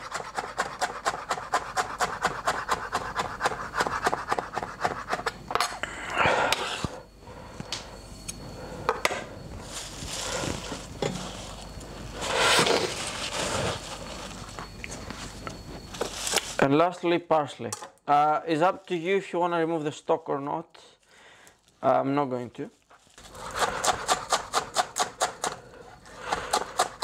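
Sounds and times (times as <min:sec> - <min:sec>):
knife scraping board: 0:00.0 - 0:05.4, 0:12.2 - 0:14.5, 0:23.2 - 0:27.0.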